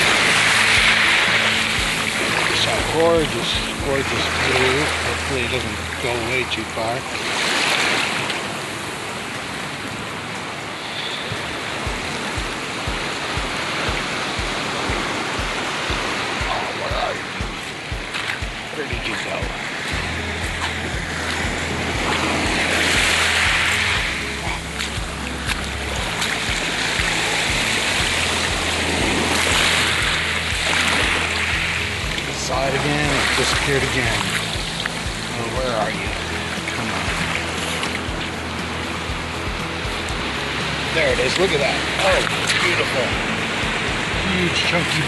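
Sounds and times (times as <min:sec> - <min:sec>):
background music with low bass: 0:00.0 - 0:07.6, 0:11.4 - 0:45.0
surf washing over pebbles: 0:00.0 - 0:45.0
low regular thump: 0:11.8 - 0:16.6, 0:17.2 - 0:18.8, 0:19.4 - 0:35.4.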